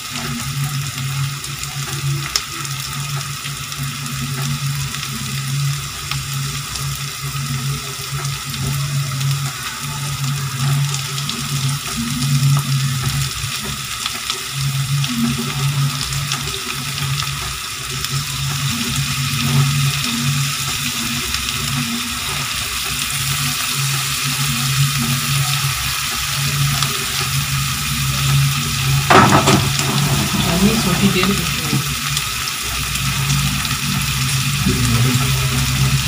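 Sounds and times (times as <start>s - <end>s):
prawns and onions sizzling: 0.0s - 36.0s
low hum: 28.8s - 32.2s.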